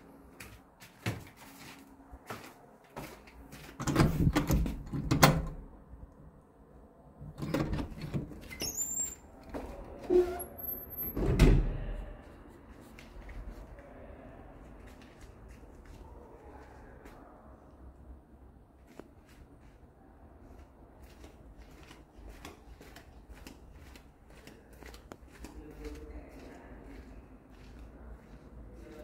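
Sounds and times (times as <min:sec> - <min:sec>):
door squeak: 0:07.4 - 0:09.3, 0:10.0 - 0:11.6.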